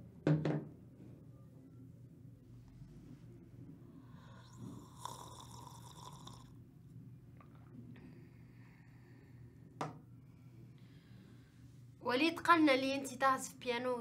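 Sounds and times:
cup knocking on wooden table: 0:00.2 - 0:00.7, 0:09.8 - 0:10.0
slurping sip of tea: 0:04.4 - 0:06.5.

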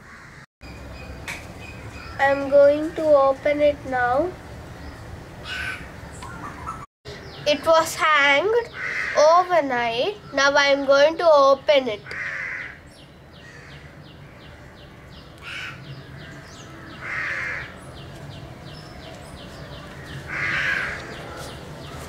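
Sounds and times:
crows cawing: 0:00.0 - 0:00.4, 0:05.4 - 0:06.0, 0:08.7 - 0:09.4, 0:12.1 - 0:12.8, 0:13.4 - 0:17.8, 0:20.0 - 0:21.4.

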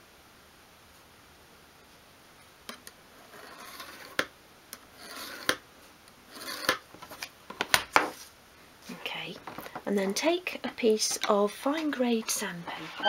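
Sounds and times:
screwdriver scratching wood: 0:05.0 - 0:05.6, 0:06.3 - 0:06.8.

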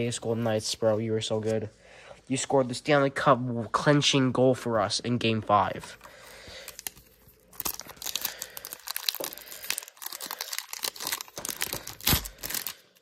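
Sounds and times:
wrapper tearing and crinkling: 0:06.6 - 0:13.0.

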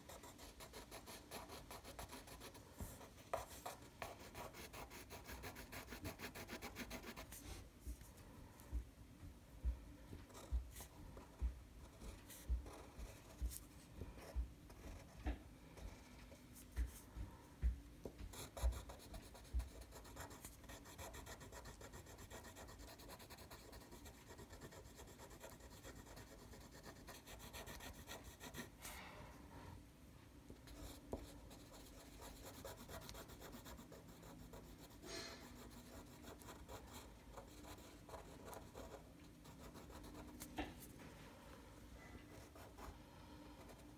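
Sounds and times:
marker scribbling on paper: 0:30.7 - 0:40.6.

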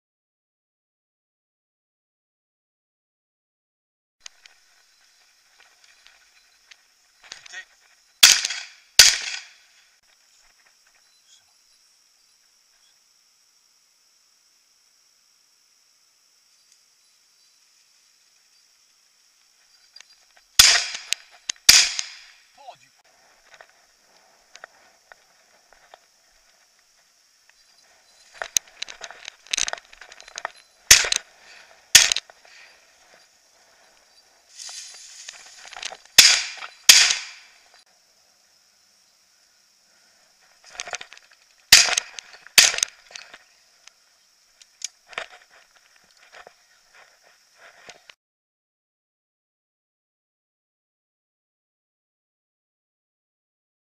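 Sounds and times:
faint high hiss: 0:04.2 - 0:48.1
shotgun shots: 0:08.2 - 0:09.6, 0:20.6 - 0:22.4, 0:30.9 - 0:31.2, 0:31.9 - 0:32.2, 0:36.2 - 0:37.5, 0:41.7 - 0:42.9.

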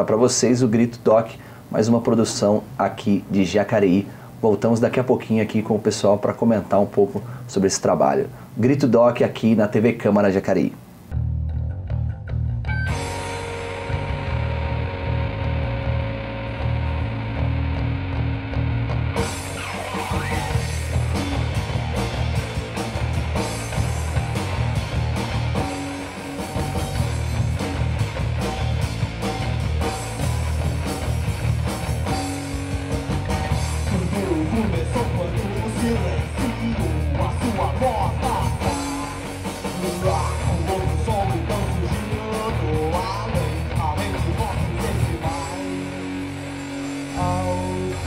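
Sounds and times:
rock music with guitar: 0:11.1 - 0:48.0
person singing: 0:33.8 - 0:46.1, 0:47.1 - 0:48.0.

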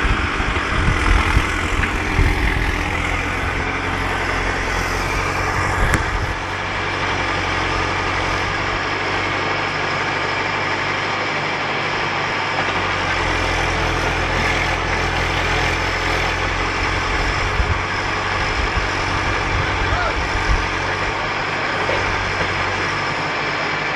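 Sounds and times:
diesel engine running: 0:00.0 - 0:23.9.

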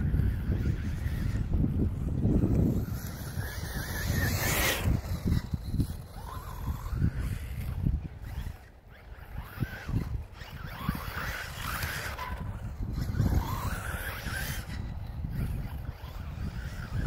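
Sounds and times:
electric motor whining: 0:00.0 - 0:17.0
wind buffeting microphone: 0:00.0 - 0:17.0.

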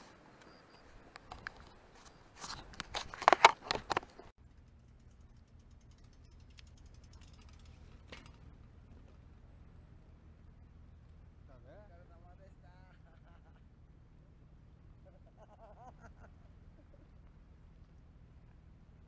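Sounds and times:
faint steady low hum: 0:04.4 - 0:19.0.

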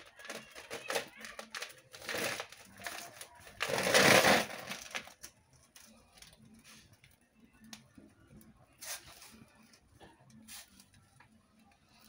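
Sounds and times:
newspaper burning with crackles: 0:00.0 - 0:07.9.

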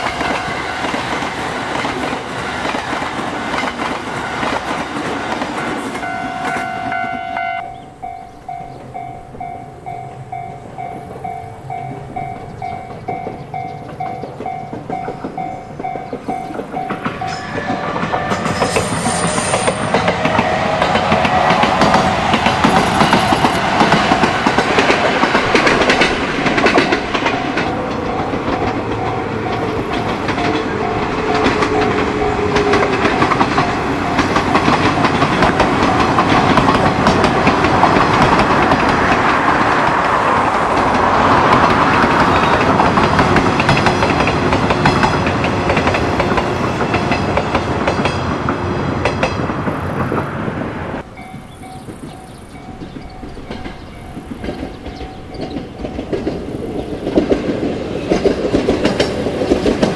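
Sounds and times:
train wheels clattering: 0:00.0 - 0:50.3, 0:51.0 - 0:59.9
pulsing alarm tone: 0:05.6 - 0:23.8.

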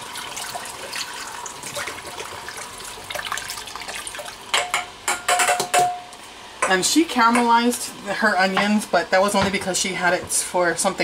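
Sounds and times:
juice pouring into pot: 0:00.0 - 0:04.5.

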